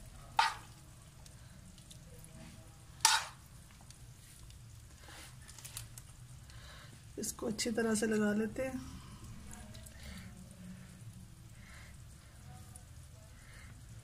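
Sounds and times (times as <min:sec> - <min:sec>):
spoon scraping food: 0:00.2 - 0:00.8, 0:03.0 - 0:03.5.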